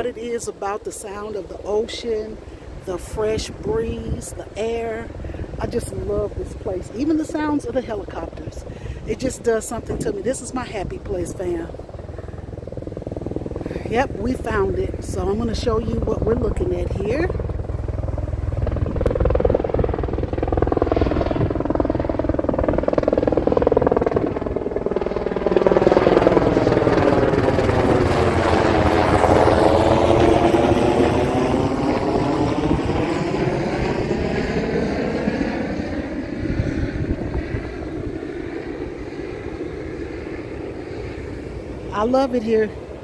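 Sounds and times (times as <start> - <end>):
helicopter flying over: 0.0 - 43.0.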